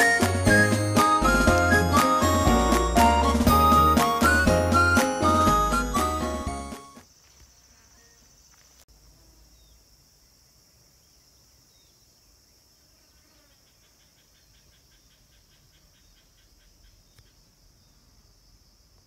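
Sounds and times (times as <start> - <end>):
distant insects: 6.9 - 19.0
faint bird chirps: 7.3 - 8.4, 9.4 - 10.4, 11.0 - 18.4.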